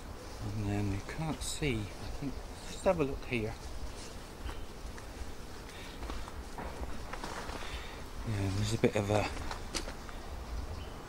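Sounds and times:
footsteps scuffing: 2.7 - 7.8.

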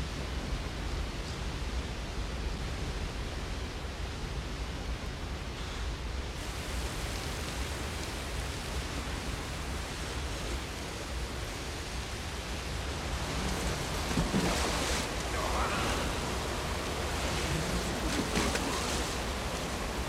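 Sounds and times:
rushing waterfall: 0.0 - 20.0
water splashing: 6.4 - 20.0.

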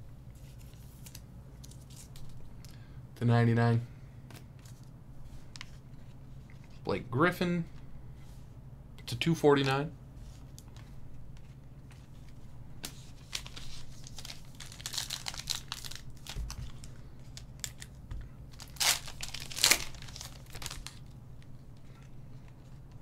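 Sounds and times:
cards rustling: 0.4 - 2.4, 10.4 - 21.1
foil pack crinkling: 13.0 - 21.5.

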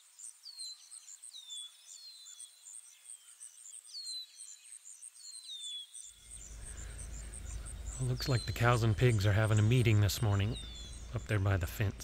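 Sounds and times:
high-pitched insect chirping: 5.8 - 11.3.

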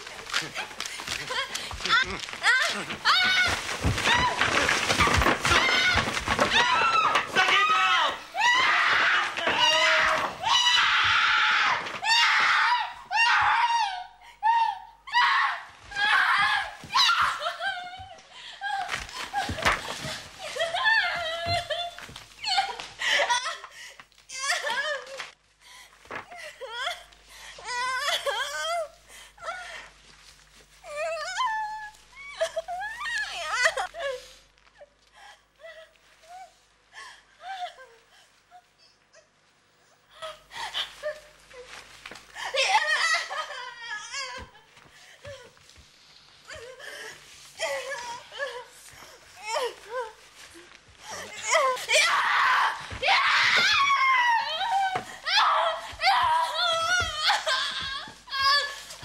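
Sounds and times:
woman's wavering wordless cries: 46.5 - 59.0.

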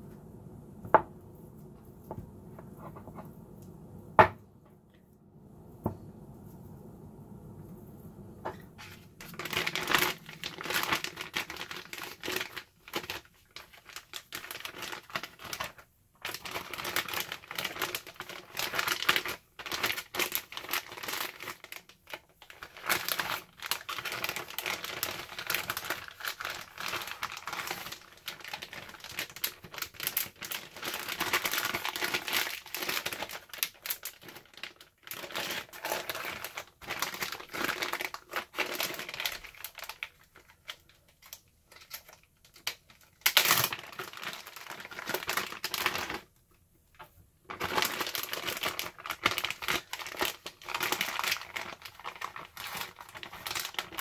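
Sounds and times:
plastic bags crinkling: 8.5 - 46.3, 47.4 - 54.0.

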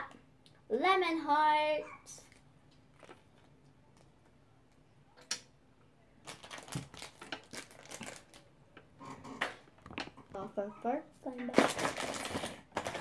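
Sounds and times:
foil wrapper rustling: 6.2 - 8.5, 11.6 - 13.0.

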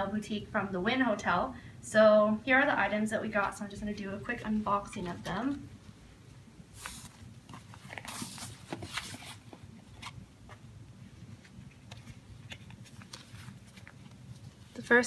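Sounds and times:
ribbon rustling: 6.7 - 15.0.

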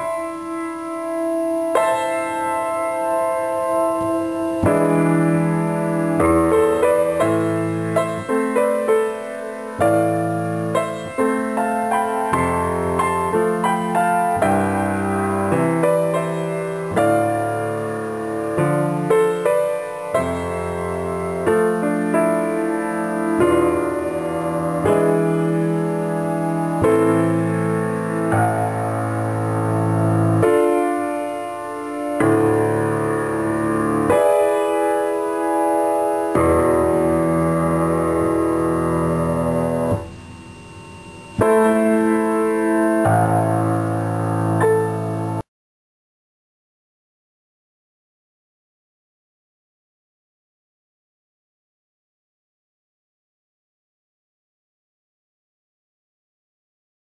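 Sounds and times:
solo piano music: 0.0 - 45.5.

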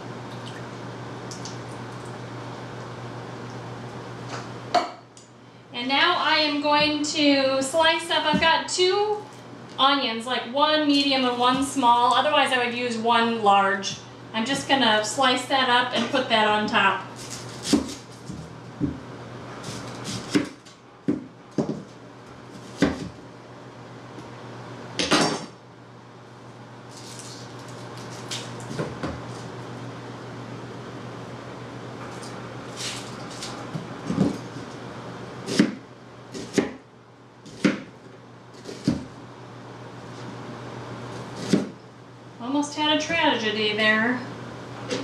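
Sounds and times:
knife slicing onion on cutting board: 17.2 - 19.0, 19.6 - 21.9, 22.5 - 23.2, 35.4 - 35.8, 36.4 - 36.8, 37.5 - 37.9, 41.2 - 41.8.

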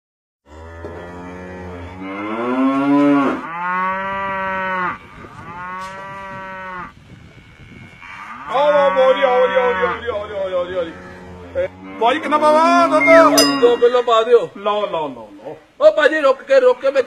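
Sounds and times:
cattle mooing: 0.5 - 13.9.

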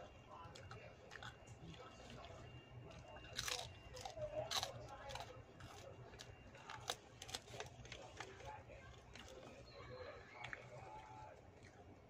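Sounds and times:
chewing clicks: 0.3 - 12.0
crunchy bites: 0.4 - 9.6.

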